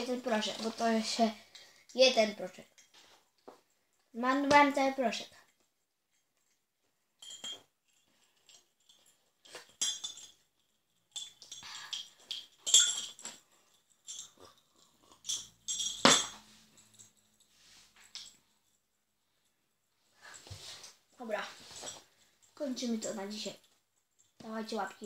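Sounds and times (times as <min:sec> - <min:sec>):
teaspoon clinking against glass: 0:14.0 - 0:17.0.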